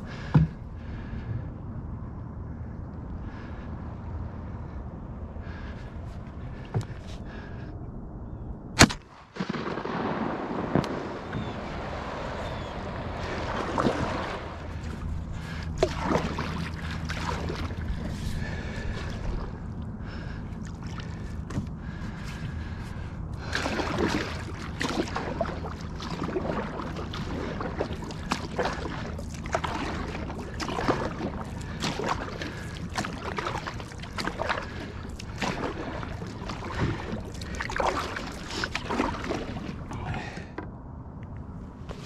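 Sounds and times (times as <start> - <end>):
water splashes and drips: 9.4 - 19.8, 20.6 - 40.4
paddle stroking through water: 10.8 - 40.5.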